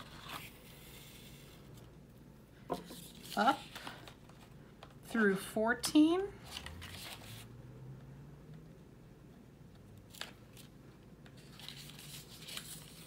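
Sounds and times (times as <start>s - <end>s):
stiff paper rustling: 11.4s - 13.0s.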